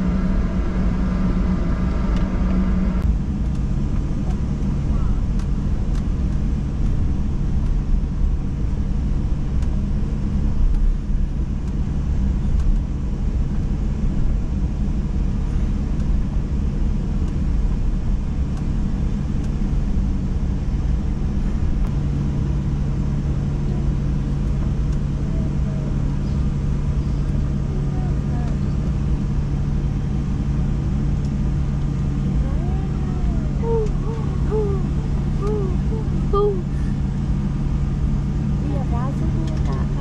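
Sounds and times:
airliner cabin rumble: 0.0 - 40.0
constant hum: 0.0 - 40.0.

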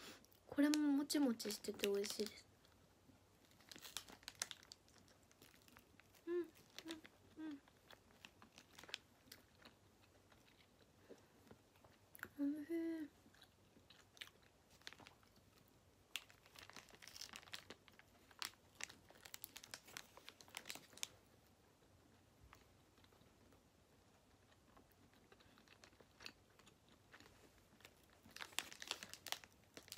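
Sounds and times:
paper wrapper crinkling: 1.2 - 2.4, 3.4 - 9.6, 14.7 - 15.4, 16.1 - 21.2, 27.3 - 29.9
person humming: 6.2 - 7.7, 12.3 - 13.1.

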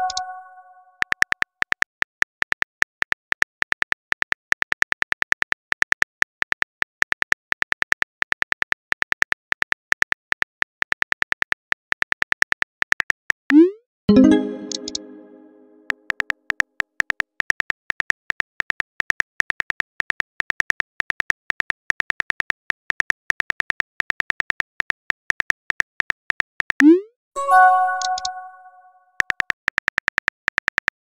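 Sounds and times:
phone keyboard typing clicks: 0.0 - 0.5, 14.3 - 15.2, 27.8 - 28.8
message chime: 0.0 - 0.8, 14.1 - 15.9, 27.4 - 29.0.

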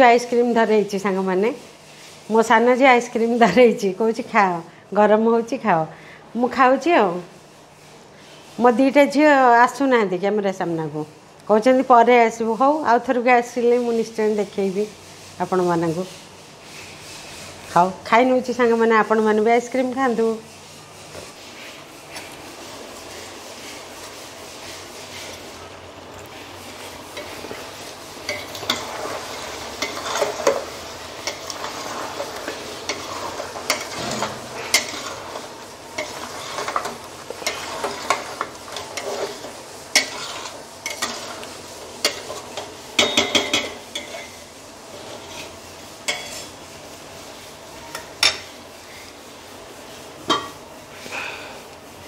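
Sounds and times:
food sizzling: 13.6 - 52.0
spatula scraping a metal pot: 26.3 - 49.2.

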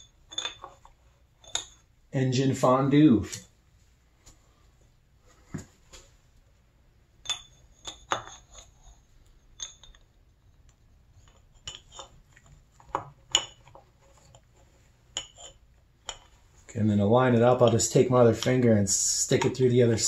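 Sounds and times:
light metallic clicks and clinks: 7.2 - 10.2.

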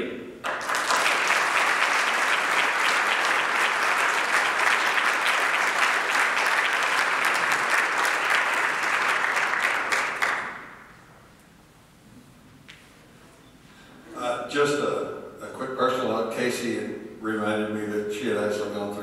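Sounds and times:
audience applauding: 0.4 - 11.0.

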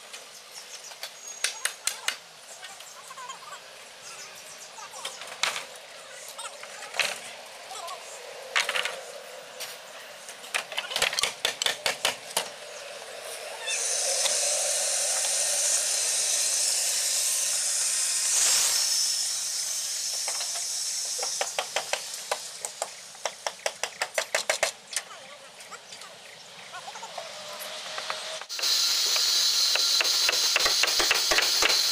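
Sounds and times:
steady high hiss: 12.3 - 23.8, 26.5 - 31.9.

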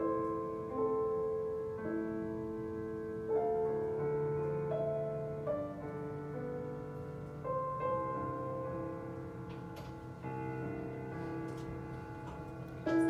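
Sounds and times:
slow gentle piano music: 0.0 - 13.0.

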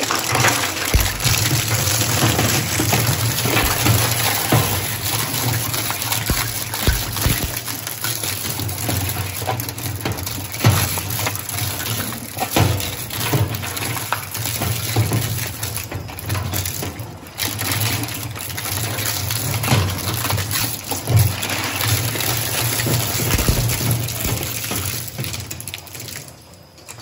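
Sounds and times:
shredder crushing hard plastic: 0.1 - 9.1, 21.2 - 25.4.

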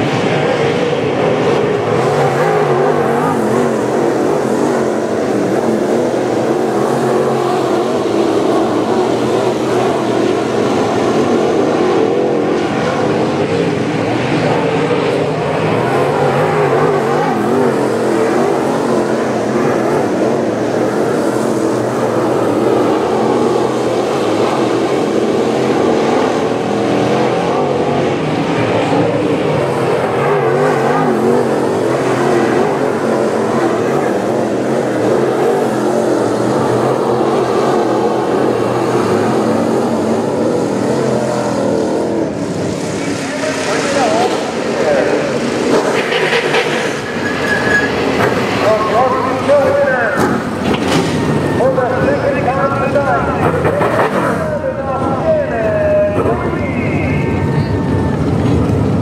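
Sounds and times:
race car engines roaring: 0.0 - 59.0.

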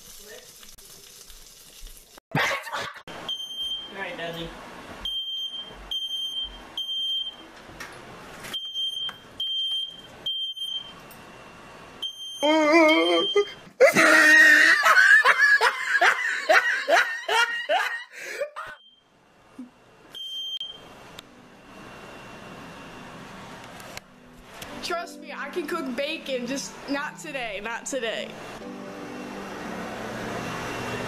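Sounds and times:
person laughing loudly: 2.3 - 3.0, 12.4 - 18.8
smoke alarm beeping: 3.3 - 4.0, 5.0 - 7.5, 8.5 - 11.2, 12.0 - 12.5, 13.1 - 13.6, 18.8 - 19.1, 20.1 - 20.8.

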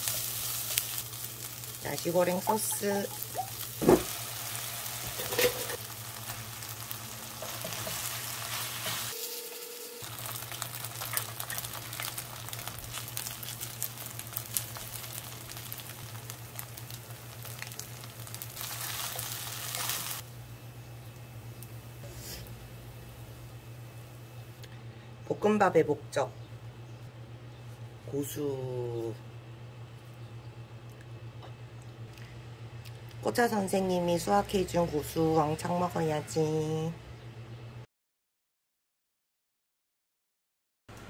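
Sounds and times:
rice sizzling in a frying pan: 0.0 - 24.2
spatula scraping a pan: 5.0 - 5.8.

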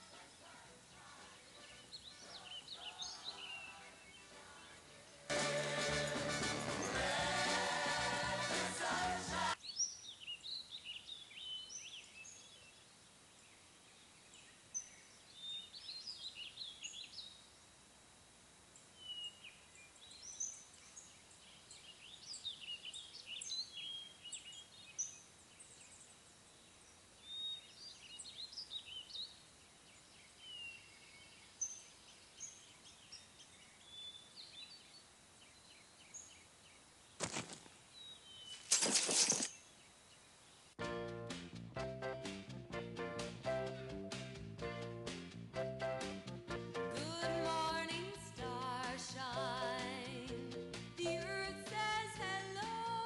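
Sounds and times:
songbirds chirping: 0.0 - 8.3, 9.5 - 40.8
music: 0.0 - 9.6, 40.8 - 53.0.

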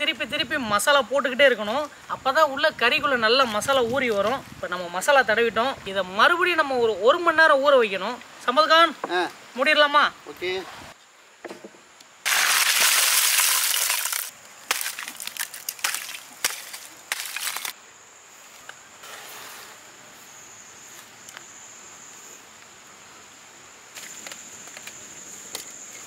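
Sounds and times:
charcoal pouring onto ground: 12.2 - 17.8
charcoal chunks clinking: 12.3 - 17.8.

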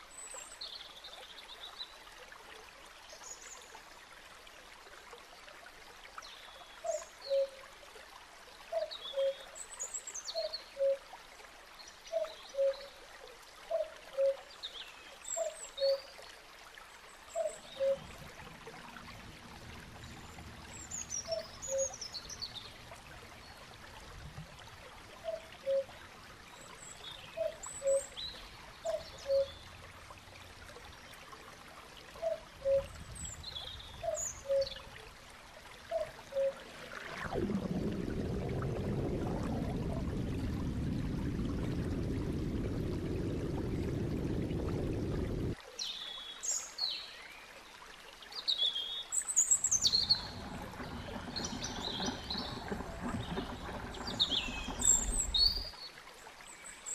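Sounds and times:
trickling water: 0.0 - 56.9
low rumble: 36.6 - 45.6, 49.8 - 55.7.

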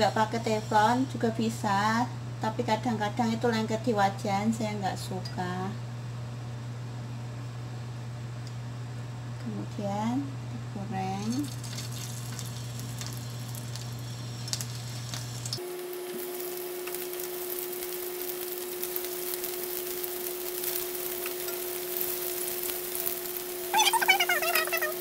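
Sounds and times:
food sizzling in hot oil: 11.2 - 25.0.

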